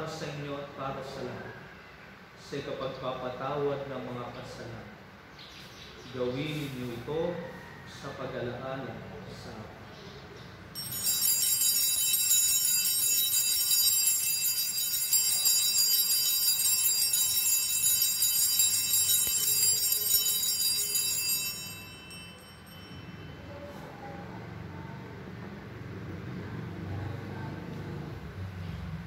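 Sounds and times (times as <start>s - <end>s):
altar bells ringing: 10.7s - 24.4s.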